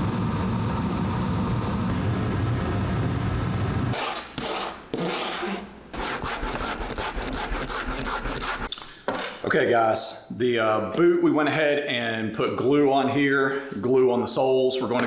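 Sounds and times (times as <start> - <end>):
low droning noise: 0.0 - 4.0.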